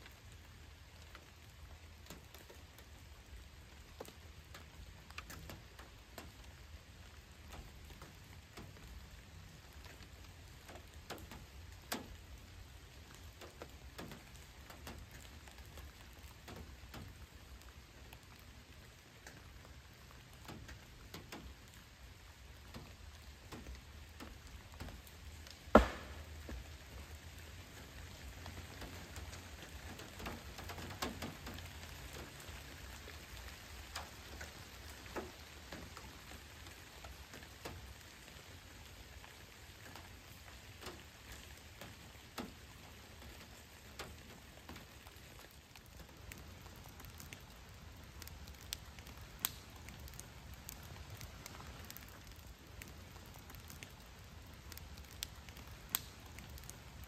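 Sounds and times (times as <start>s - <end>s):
steady rain falling: 0.0s - 57.0s
sharp loud tap: 25.7s - 26.4s.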